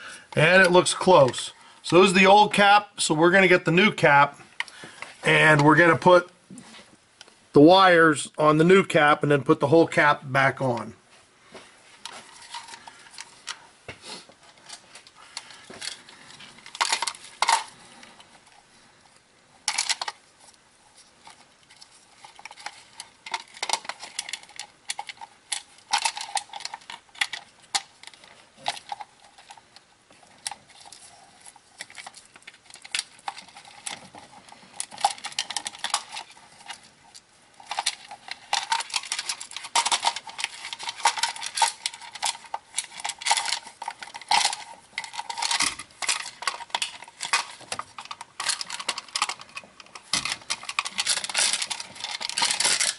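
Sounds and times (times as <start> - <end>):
small plastic clicks and rattles: 21.2 - 52.9.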